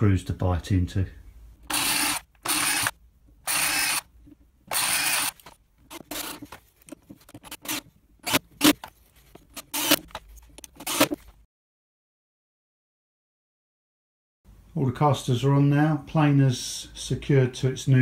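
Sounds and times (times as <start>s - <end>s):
drill clicks: 1.6s - 4.1s, 4.7s - 6.6s, 9.6s - 11.2s
cordless drill whirring: 1.7s - 4.1s, 4.7s - 6.4s.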